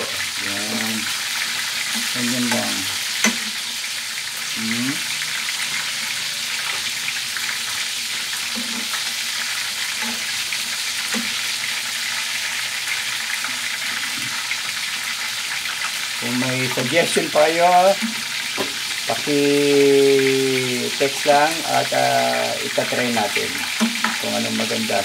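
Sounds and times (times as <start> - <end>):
chicken frying in hot oil: 0.0 - 25.0.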